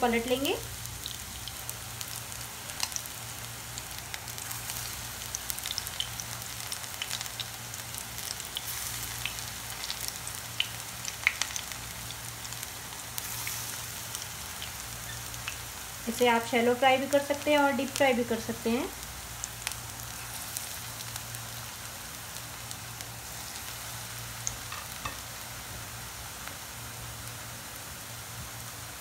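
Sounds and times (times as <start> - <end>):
batter sizzling in hot oil: 0.0 - 29.0.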